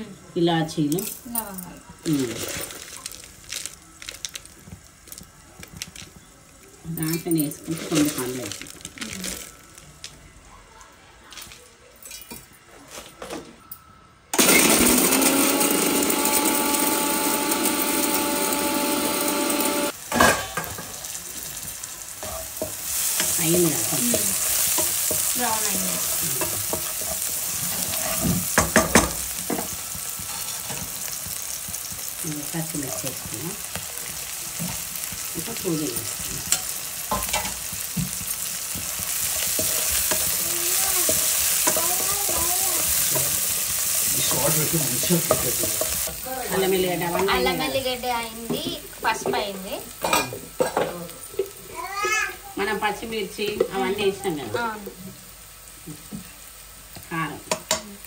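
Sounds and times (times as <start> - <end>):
onions sizzling in a pan: 0.0 - 11.5, 14.4 - 58.0
electric mixer grinder running: 14.4 - 20.0
spatula stirring: 21.4 - 51.6
wooden spatula scraping pan: 22.2 - 28.8.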